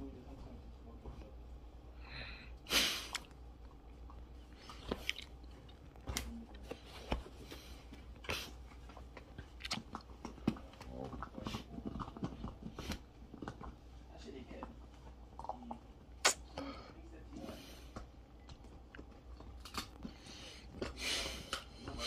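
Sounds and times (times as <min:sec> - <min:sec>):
dog chewing a bone: 0:03.2 - 0:16.2, 0:17.6 - 0:22.0.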